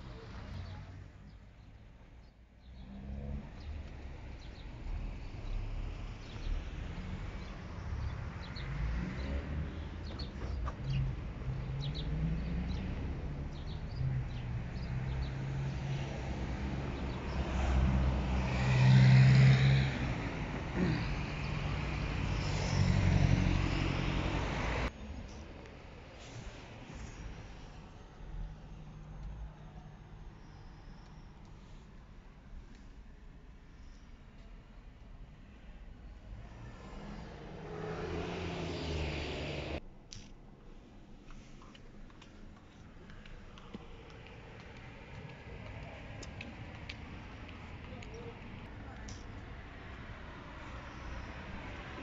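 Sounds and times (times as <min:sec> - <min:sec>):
street traffic passing: 0:00.0 - 0:52.0
birds chirping: 0:07.4 - 0:15.9
vehicle passing loudly: 0:10.9 - 0:24.9, 0:36.3 - 0:39.8.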